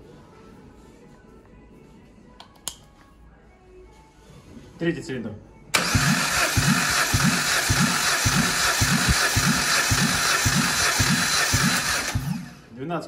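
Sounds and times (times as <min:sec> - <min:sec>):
starter motor cranking engine: 0:05.8 - 0:12.7.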